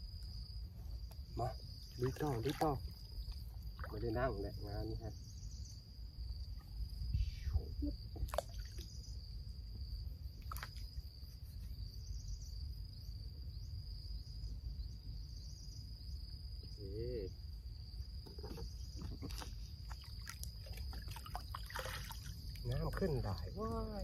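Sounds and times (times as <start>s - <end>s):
pulsing insect chirps: 0.0s - 24.0s
wind rumble on microphone: 6.3s - 8.3s.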